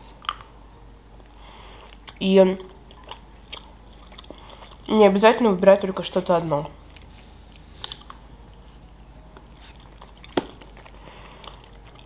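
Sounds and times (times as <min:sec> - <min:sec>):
person chewing cake: 0:01.2 - 0:04.9, 0:06.8 - 0:12.0.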